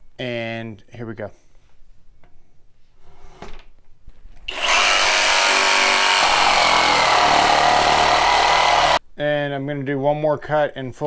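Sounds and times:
jigsaw cutting wood: 0:04.5 - 0:09.0.

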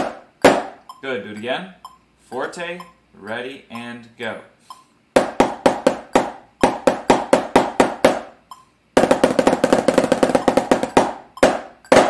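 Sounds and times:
drumsticks on practice pad: 0:04.6 - 0:12.0.

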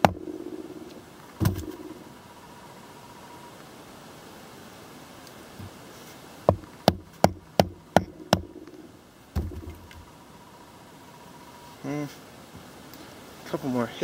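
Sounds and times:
blade chopping wood: 0:01.4 - 0:01.8.

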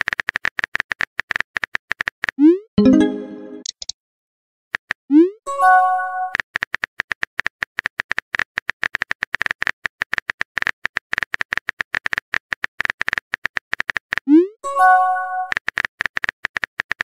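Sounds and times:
rapid keyboard clicks: 0:00.0 - 0:02.4, 0:06.4 - 0:14.3, 0:15.5 - 0:17.0.

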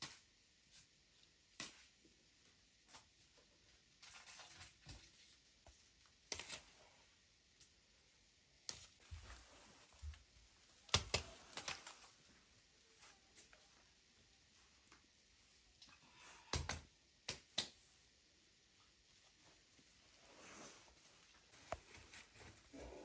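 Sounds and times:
hands clicking tapping and rustling: 0:10.9 - 0:12.1, 0:16.5 - 0:17.8.

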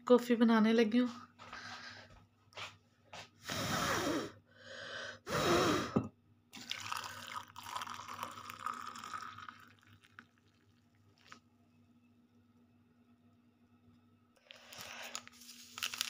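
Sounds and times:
liquid dripping: 0:06.6 - 0:11.4
milk pouring into mug: 0:06.6 - 0:11.5.

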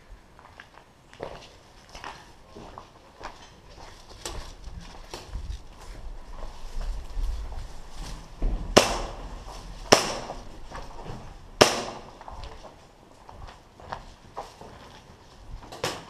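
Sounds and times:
faint ticks and shuffles: 0:00.4 - 0:08.7, 0:12.2 - 0:15.8
airsoft gun shots: 0:08.8 - 0:09.2, 0:09.9 - 0:10.4, 0:11.6 - 0:12.2.

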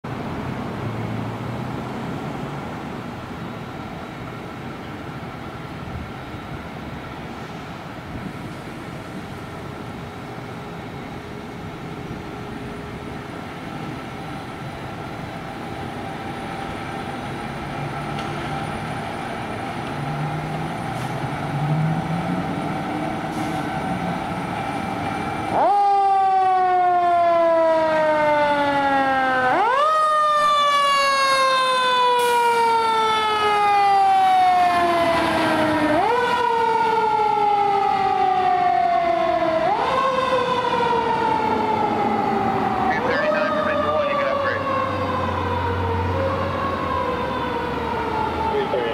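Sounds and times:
fire engine motor running: 0:02.5 - 0:48.9
siren wailing: 0:13.6 - 0:48.9.

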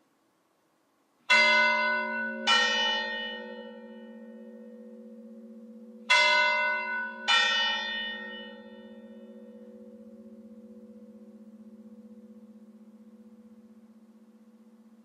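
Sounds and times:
large bell ringing: 0:01.3 - 0:15.0.

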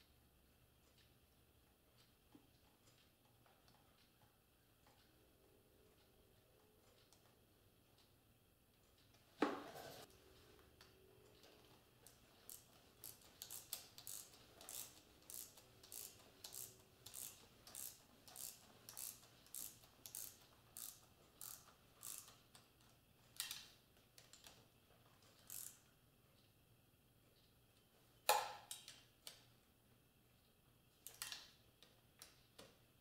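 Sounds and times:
ratchet clicking: 0:11.4 - 0:22.4, 0:25.3 - 0:25.8.

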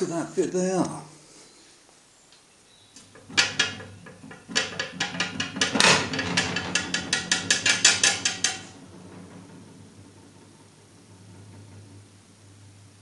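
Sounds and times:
steel plate clanking on bench: 0:03.0 - 0:12.2.

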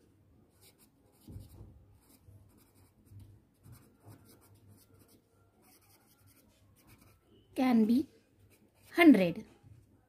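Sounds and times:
pen scratching on paper: 0:00.5 - 0:07.2.

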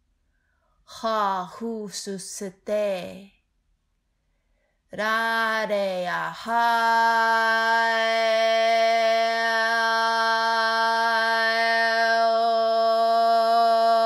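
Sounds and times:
woman singing long note: 0:05.0 - 0:14.0.

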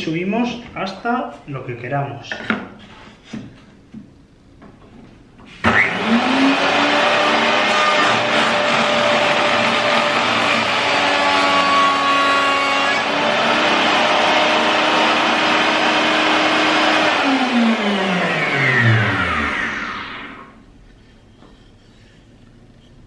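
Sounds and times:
router bit cutting wood: 0:05.6 - 0:20.5
router motor whining: 0:05.7 - 0:20.5
motor spinning down: 0:13.3 - 0:20.6.

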